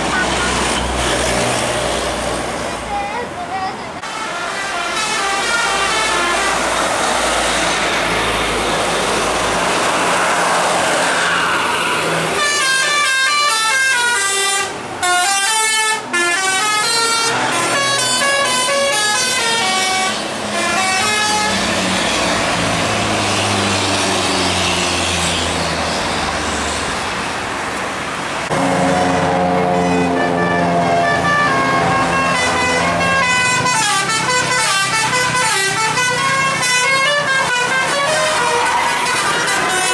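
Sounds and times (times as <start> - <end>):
bus engine and road noise: 0.0 - 39.9
bus horn playing fast tune: 4.0 - 6.9, 12.2 - 21.7, 28.5 - 39.9.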